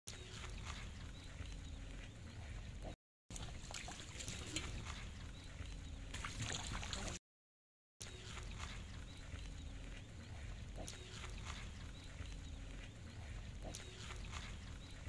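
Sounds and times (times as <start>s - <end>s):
water sloshing and splashing: 3.3s - 5.2s, 6.1s - 7.2s.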